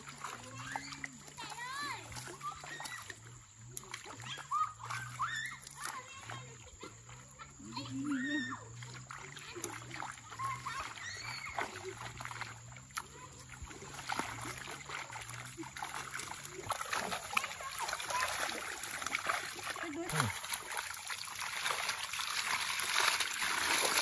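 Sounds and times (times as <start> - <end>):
water splashing and sloshing: 0.0 - 24.0
fish thrashing in net: 13.9 - 24.0.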